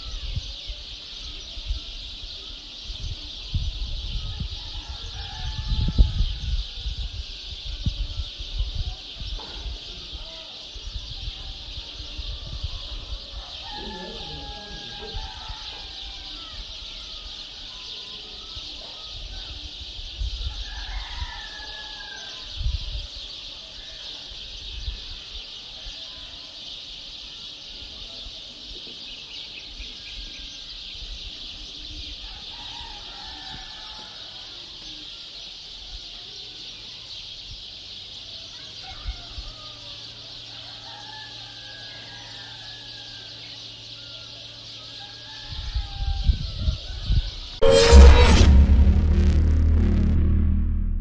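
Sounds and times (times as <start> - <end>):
birds calling and chirping: 0.0 - 47.6
low thumps: 47.6 - 51.0.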